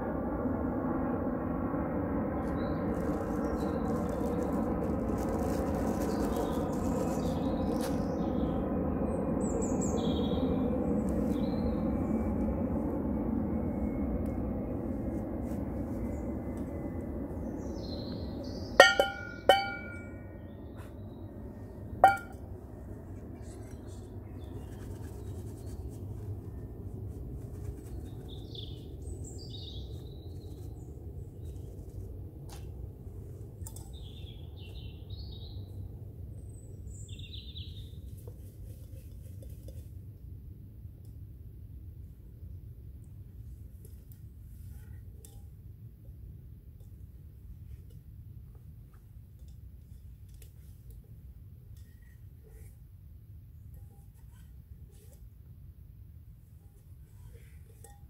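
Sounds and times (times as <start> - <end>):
metal cookware clinks: 18.8 - 20.1, 22.0 - 22.4.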